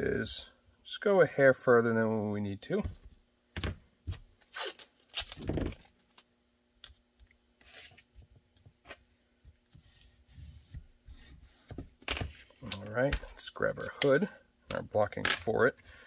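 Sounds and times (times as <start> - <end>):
tape ripping off roll: 4.4 - 5.8
tape crinkling and knocks: 5.1 - 7.4.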